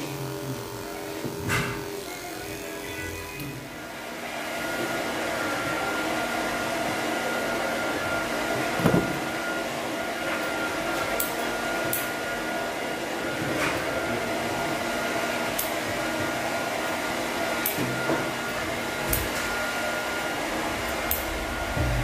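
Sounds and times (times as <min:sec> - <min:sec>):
appliance motor whirring: 0:00.0 - 0:04.0, 0:13.2 - 0:22.0.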